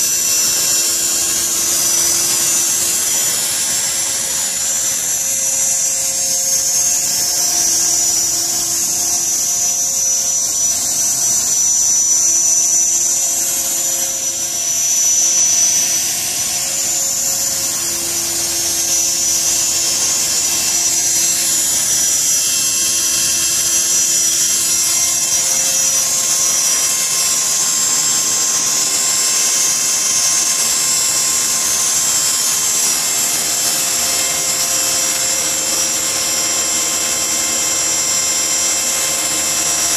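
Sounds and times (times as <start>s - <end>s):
rc helicopter motor whine: 0.0s - 39.9s.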